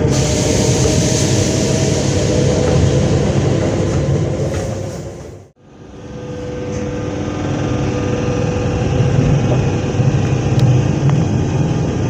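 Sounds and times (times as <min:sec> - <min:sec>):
electric train running: 0:00.0 - 0:12.0.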